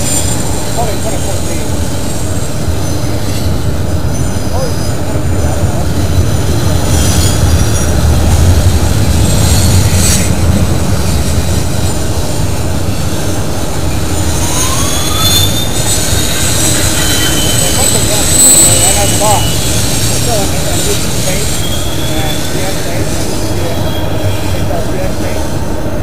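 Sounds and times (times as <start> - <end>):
thin wheel squeals: 0.0 - 10.3, 12.8 - 25.6
train wheels rumbling on rail: 0.0 - 26.0.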